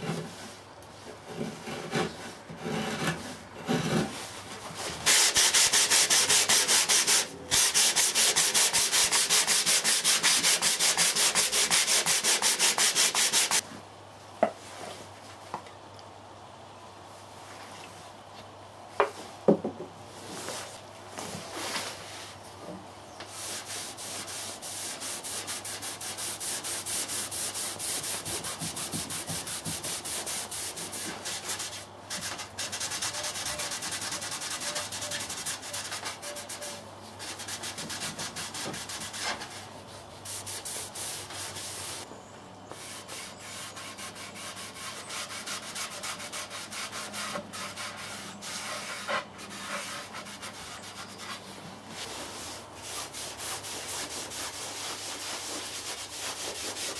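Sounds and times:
hand sanding wood: 5.0 - 13.6, 23.3 - 42.1, 42.7 - 56.9.

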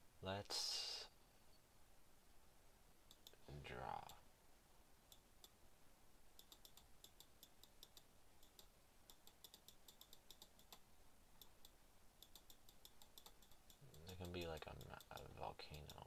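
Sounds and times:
faint clicking of computer controls: 3.0 - 4.2, 5.0 - 5.6, 6.3 - 16.0.

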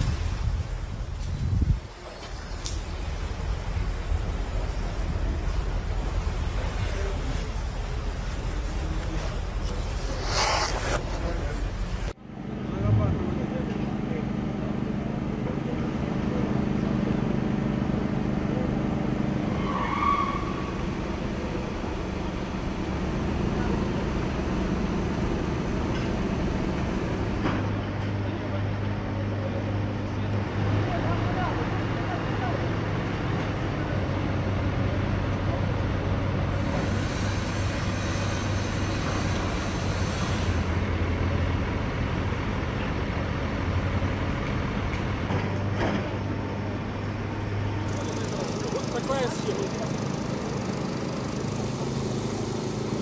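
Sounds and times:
high squeal: 19.4 - 20.9
heavy machinery engine droning: 20.5 - 53.0.

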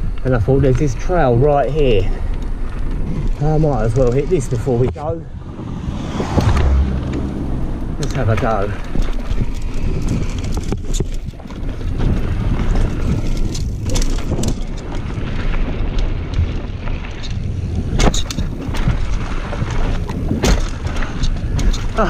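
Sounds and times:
bike rattling: 0.0 - 22.0
tyres rumbling on dirt: 0.0 - 22.0
wind buffeting microphone: 0.0 - 22.0
sharp knocks over bumps: 20.0 - 22.0.

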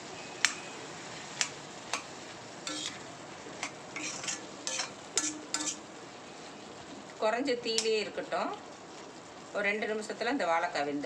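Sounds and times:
oil sizzling: 0.0 - 11.0
metal spoon scraping a pan: 2.0 - 5.9.

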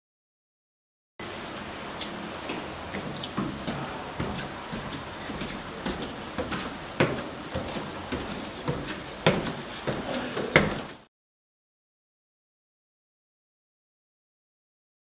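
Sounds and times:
steady hiss: 1.3 - 11.1.

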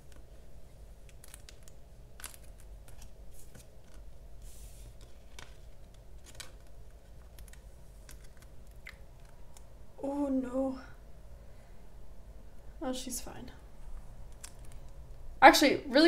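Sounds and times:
plastic sleeve rustling: 1.0 - 9.6.

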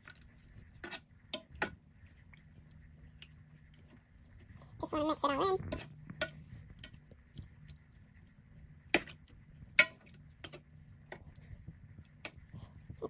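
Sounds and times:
wooden spoon scraping a pan: 0.0 - 1.8.

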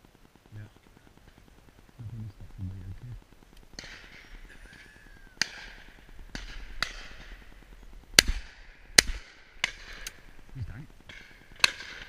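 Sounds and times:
distant gunshots: 3.7 - 4.8, 5.4 - 7.6, 8.2 - 10.3, 11.0 - 12.0
shotgun shots: 5.4 - 7.5, 8.2 - 10.2, 11.1 - 12.0.

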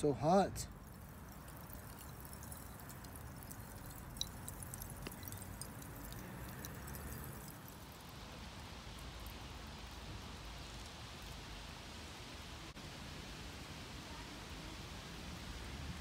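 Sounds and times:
fire crackling and popping: 0.7 - 8.0.

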